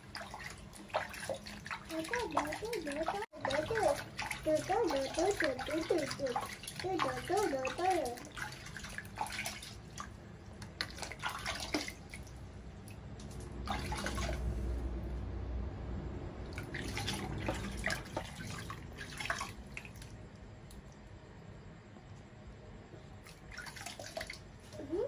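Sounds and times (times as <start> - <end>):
water pouring: 0.0 - 14.6, 16.5 - 20.2
water splashing in plastic basin: 0.0 - 14.7, 16.4 - 20.8, 23.2 - 24.8.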